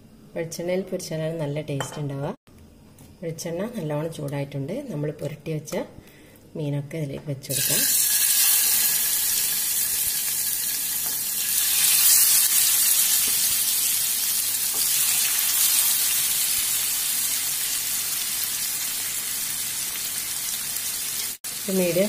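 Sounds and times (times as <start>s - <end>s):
fish sizzling in a pan: 7.5s - 22.0s.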